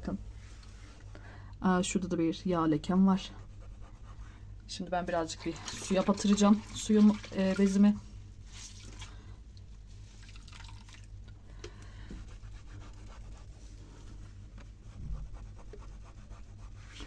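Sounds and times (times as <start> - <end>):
low steady hum: 0.0 - 17.0
cloth dipped in water: 5.2 - 11.4
cloth wiping cabinet door: 12.2 - 17.0.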